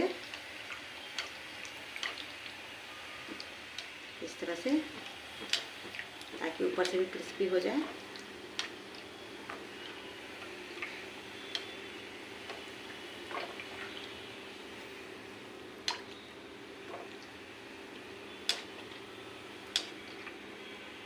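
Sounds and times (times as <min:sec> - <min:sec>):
food deep-frying in hot oil: 0:00.0 - 0:21.0.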